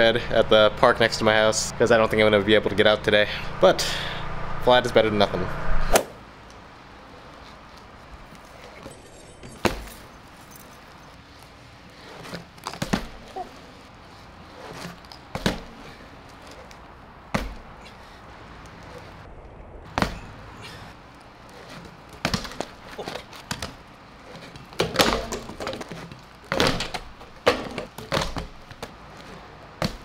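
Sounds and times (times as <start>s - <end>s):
bike knocking on concrete: 12.0s - 13.8s, 14.5s - 17.9s, 21.5s - 30.0s.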